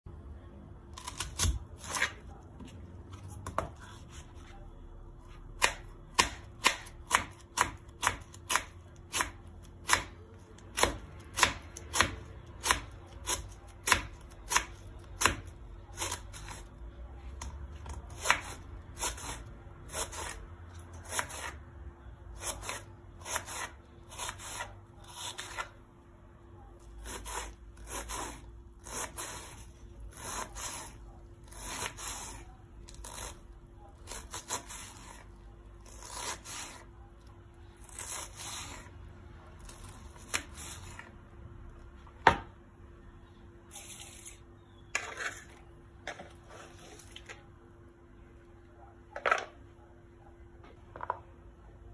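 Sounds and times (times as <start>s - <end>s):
knife chopping on wooden board: 5.6s - 16.6s, 42.2s - 42.5s.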